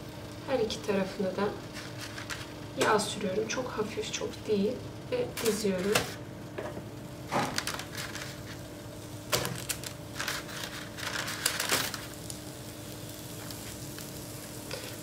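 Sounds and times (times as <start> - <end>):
parchment paper crinkling: 1.7 - 2.6, 7.3 - 8.7, 9.3 - 12.4.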